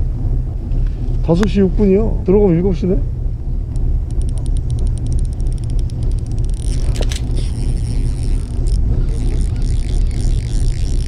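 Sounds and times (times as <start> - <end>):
steady low rumble: 0.0 - 11.0
sharp click: 3.8 - 8.8
fishing reel ticking: 3.8 - 11.0.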